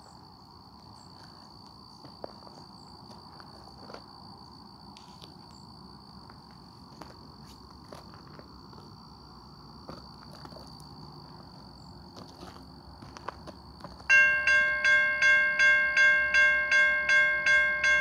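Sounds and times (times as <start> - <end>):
insects trilling: 0.0 - 18.0.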